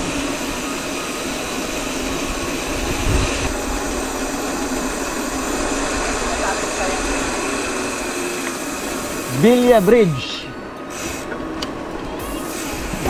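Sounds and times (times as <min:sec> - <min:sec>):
wind buffeting microphone: 0:02.3 - 0:08.2.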